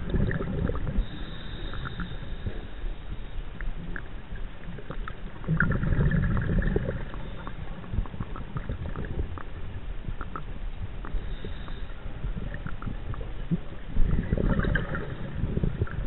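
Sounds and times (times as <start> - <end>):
gurgling bubble burst: 0.0 - 1.0, 4.8 - 7.2, 14.0 - 16.0
underwater low rumble: 0.0 - 16.0.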